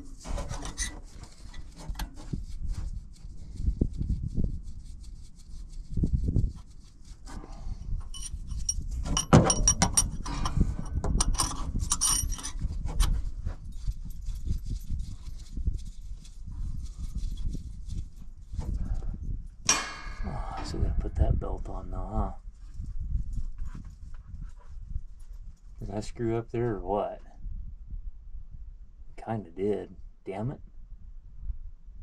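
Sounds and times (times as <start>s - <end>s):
metal scraping: 0.0s - 2.5s, 7.0s - 13.6s, 19.7s - 21.2s.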